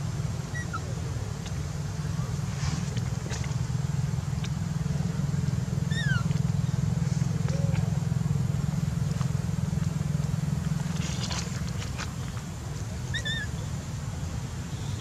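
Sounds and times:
steady low rumble: 0:00.0 - 0:15.0
baby monkey squeak: 0:00.5 - 0:00.8, 0:05.9 - 0:06.3, 0:13.1 - 0:13.5.

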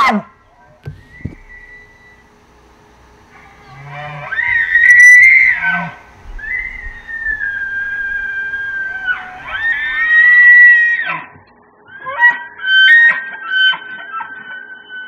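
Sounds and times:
elk bugling: 0:00.0 - 0:10.5.

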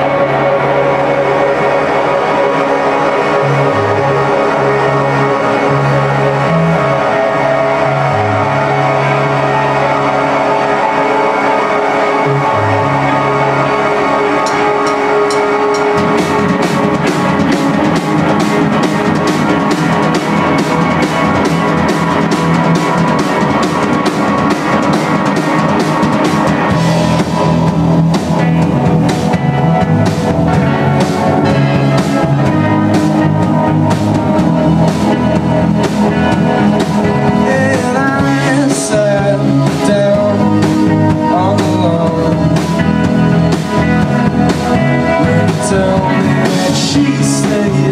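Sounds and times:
rock band playing live: 0:00.0 - 0:47.9
drum kit steady beat: 0:14.4 - 0:47.9.

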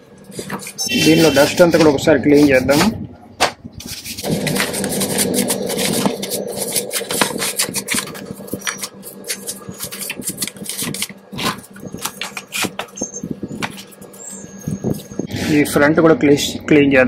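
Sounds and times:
paintbrush scrubbing plastic: 0:03.8 - 0:15.2.

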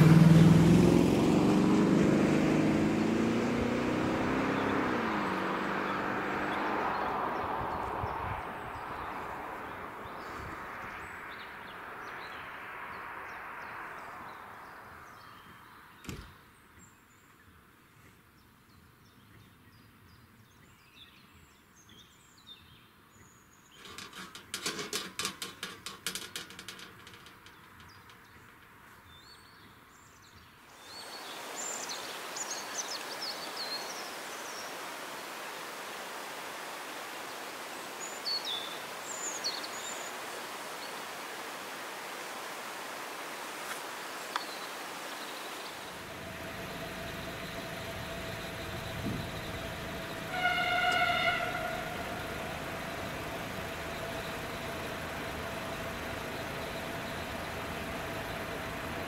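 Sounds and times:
rapid clattering: 0:23.8 - 0:28.2
small birds chirping: 0:27.4 - 0:34.8, 0:37.2 - 0:41.1, 0:43.6 - 0:59.0
broad rumble: 0:45.8 - 0:59.0.

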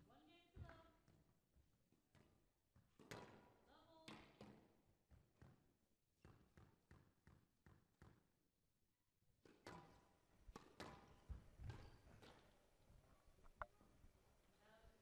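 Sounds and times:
squash ball hits: 0:09.4 - 0:12.4.

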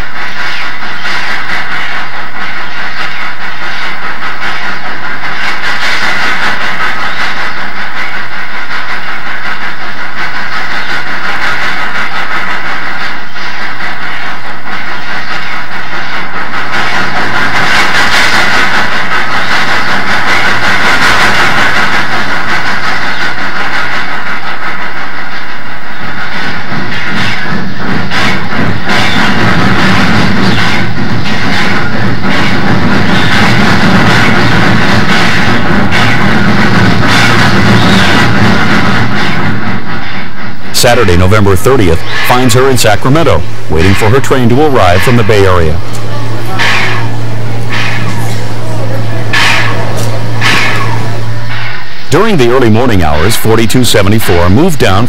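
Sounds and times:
steam locomotive exhaust rushing: 0:00.0 - 0:55.0.

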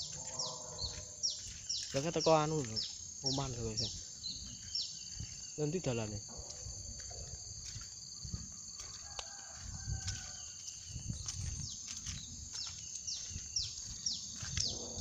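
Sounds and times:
bird calling: 0:00.0 - 0:05.6
high-pitched insect drone: 0:00.0 - 0:15.0.

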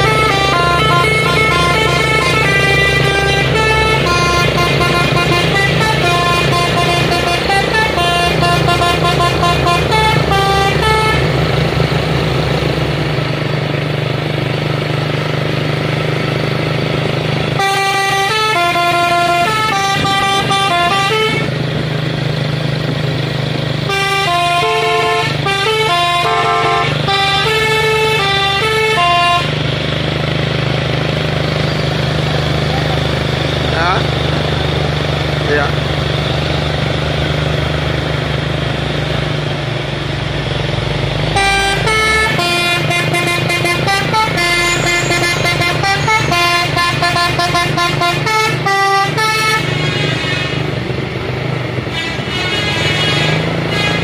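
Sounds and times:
musical air horns playing tunes: 0:00.0 - 0:11.6, 0:17.5 - 0:21.6, 0:23.9 - 0:29.6, 0:41.2 - 0:50.8, 0:51.8 - 0:54.0
truck diesel engines humming: 0:00.0 - 0:54.0.

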